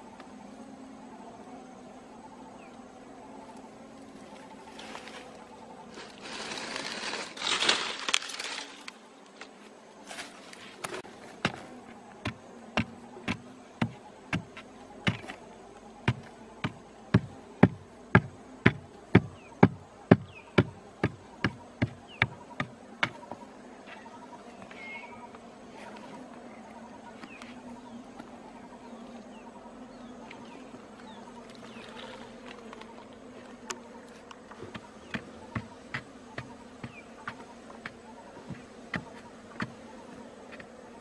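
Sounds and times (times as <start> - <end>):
scraping and rustling: 4.2 - 12.0.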